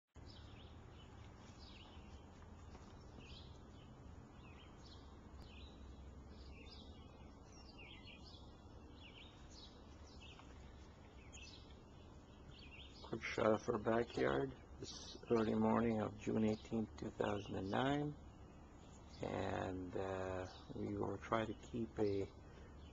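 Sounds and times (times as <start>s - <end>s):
birds chirping: 0.2s - 22.9s.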